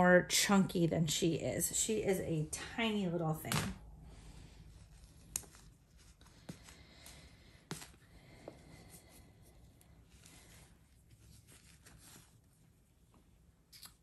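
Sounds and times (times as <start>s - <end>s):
low room hum: 0.0s - 14.0s
fabric rustle: 10.0s - 13.4s.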